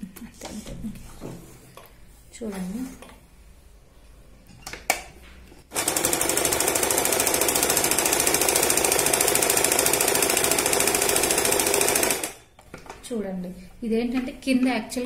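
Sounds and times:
electric sewing machine running: 5.7 - 12.4.

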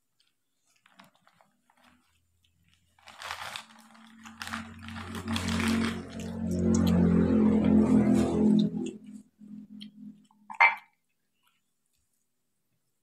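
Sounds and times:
paper wrapping crinkling: 0.0 - 6.8
eating by hand: 0.2 - 9.2
background music: 4.4 - 10.2.

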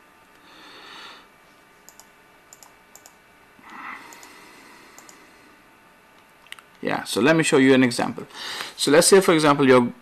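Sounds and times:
computer mouse clicking: 1.9 - 3.2, 4.1 - 4.4, 5.0 - 5.2.

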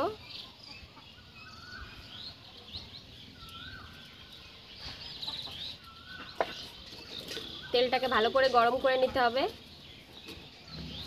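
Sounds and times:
small birds chirping: 0.0 - 11.0
chicken clucking: 4.8 - 7.5.

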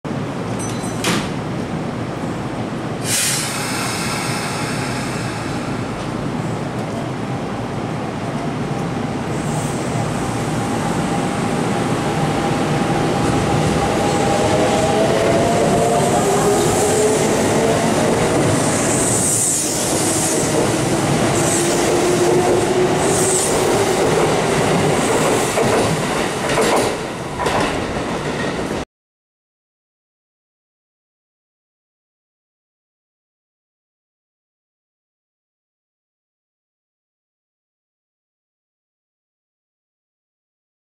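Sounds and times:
train wheels on rails: 8.7 - 28.8.

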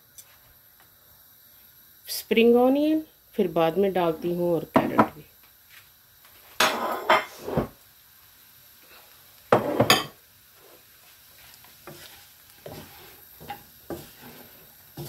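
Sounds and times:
faint sizzle: 0.0 - 15.0
wooden spatula scraping a wok: 6.6 - 7.8, 9.5 - 15.0.

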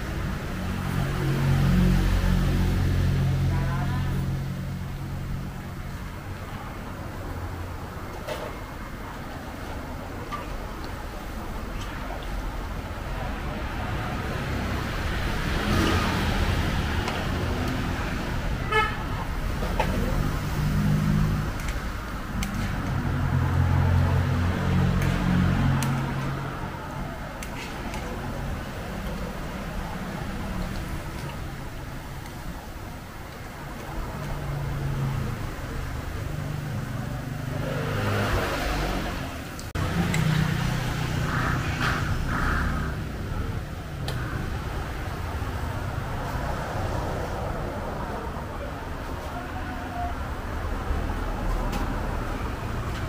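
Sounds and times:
street traffic: 0.0 - 53.0
vehicle horn toot: 18.6 - 19.0.

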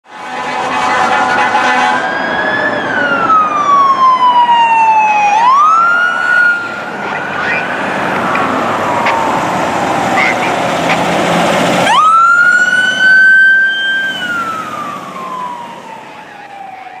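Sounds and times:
electronic wail siren: 0.2 - 17.0.

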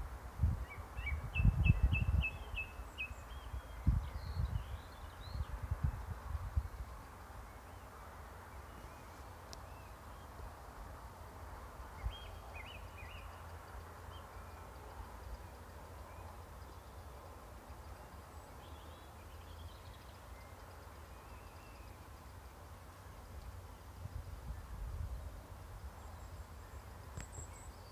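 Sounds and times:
faint bird chirps: 12.0 - 27.9.

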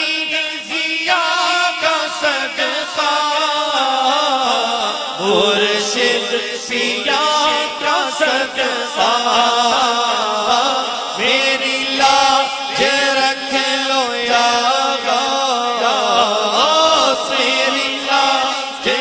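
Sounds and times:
man singing devotional song: 0.0 - 19.0.

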